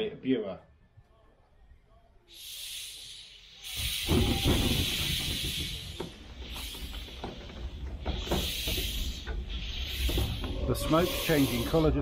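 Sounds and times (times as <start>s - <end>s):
steam locomotive hissing steam: 2.3s - 12.0s
train knocks: 4.0s - 11.3s.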